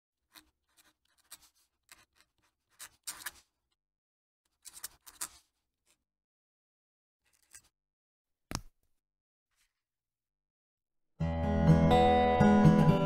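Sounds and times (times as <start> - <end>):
pen nib scratching paper: 0.3 - 3.5, 4.6 - 5.5.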